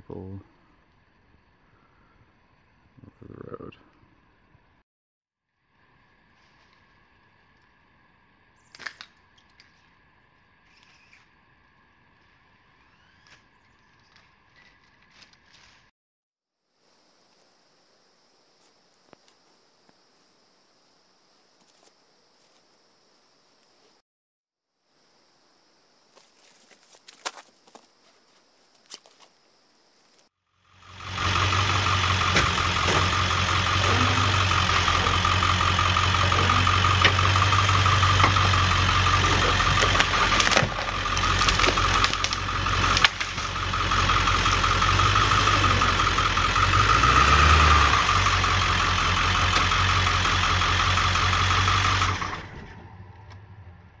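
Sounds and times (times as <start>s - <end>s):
truck engine running: 30.6s - 54.0s
sharp cracks: 39.1s - 44.6s.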